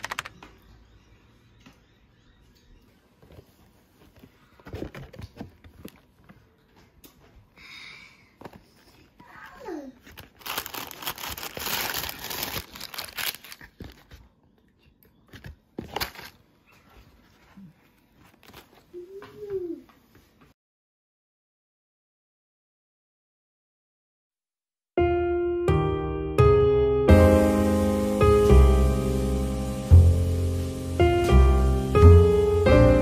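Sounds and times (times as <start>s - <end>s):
paper crinkling and rustling: 3.2s - 6.6s, 8.4s - 14.6s, 15.2s - 19.0s.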